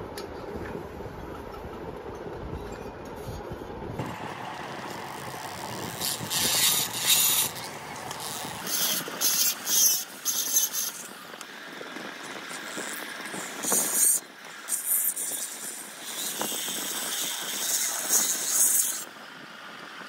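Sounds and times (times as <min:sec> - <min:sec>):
grinder bit grinding metal: 0:04.0 - 0:19.1
rotary grinder running: 0:04.0 - 0:20.0.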